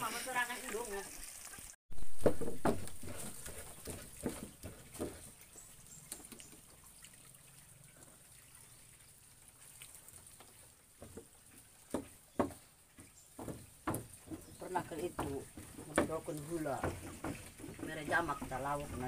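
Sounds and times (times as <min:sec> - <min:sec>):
pestle pounding in stone mortar: 0:02.0 - 0:05.3, 0:11.9 - 0:12.7, 0:13.3 - 0:18.6.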